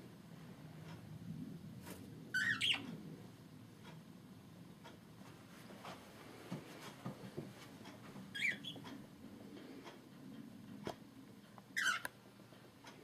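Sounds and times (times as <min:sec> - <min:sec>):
parrot chirping: 0:02.3 - 0:02.9, 0:08.3 - 0:08.8, 0:11.8 - 0:12.1.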